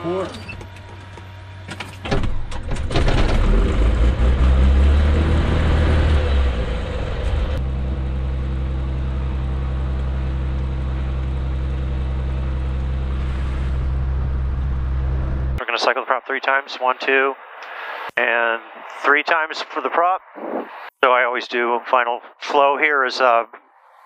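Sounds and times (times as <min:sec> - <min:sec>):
aircraft engine running: 0:00.0 - 0:21.0.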